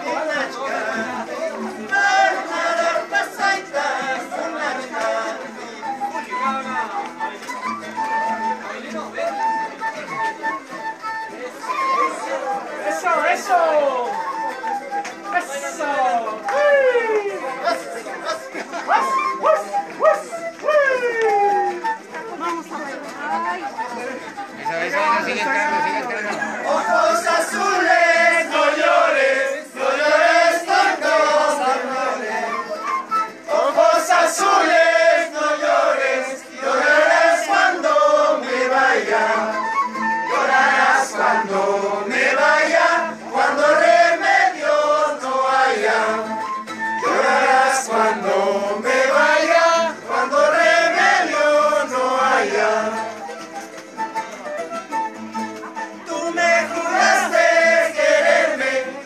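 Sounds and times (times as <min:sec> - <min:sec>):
group singing in chorus: 0:00.0 - 0:06.0, 0:25.5 - 0:53.3, 0:56.1 - 0:59.0
guitar: 0:00.0 - 0:59.0.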